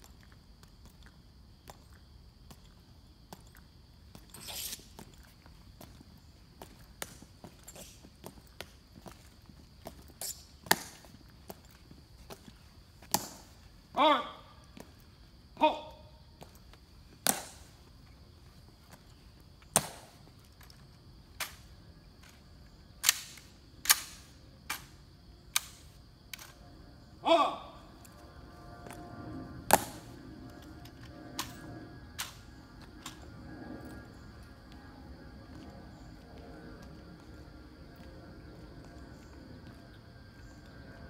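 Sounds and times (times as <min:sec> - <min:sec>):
footsteps marching on stone: 0:04.9 - 0:13.9, 0:34.3 - 0:41.0
sharp single clicks: 0:25.5 - 0:26.6.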